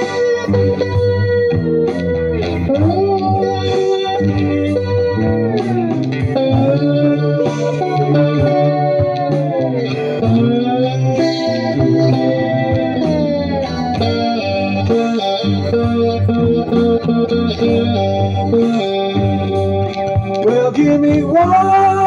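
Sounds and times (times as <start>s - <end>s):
electric guitar melody with bends: 0.0s - 22.0s.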